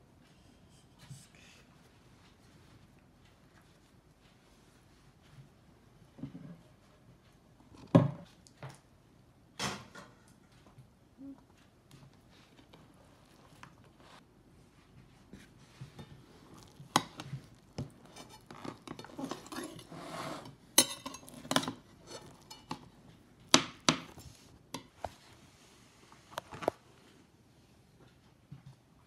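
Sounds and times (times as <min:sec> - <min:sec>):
cake server scraping glass plate: 0:18.0 - 0:22.9
cutlery clinking on glass plate: 0:20.8 - 0:23.0.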